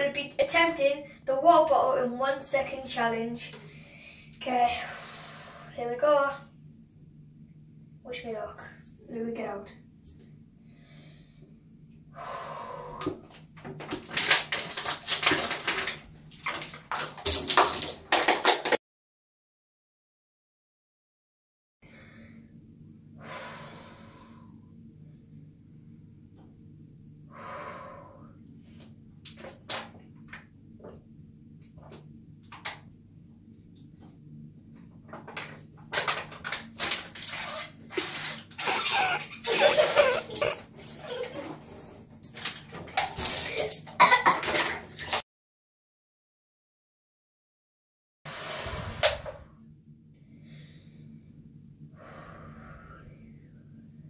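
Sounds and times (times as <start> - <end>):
water splashing from plastic bottle: 13.7 - 18.8, 35.3 - 45.2
water spluttering and spilling: 13.9 - 18.7, 35.9 - 45.2
water gurgling in bottle: 37.4 - 41.5
boy gulping water: 38.0 - 42.0.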